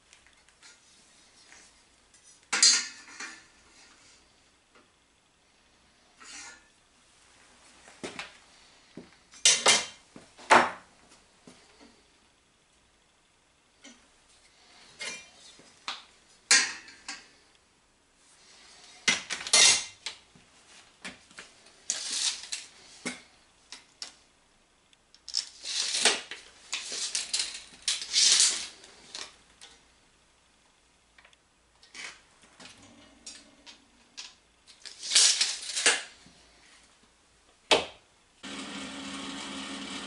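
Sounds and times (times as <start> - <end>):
welding machine hum: 38.4 - 40.0.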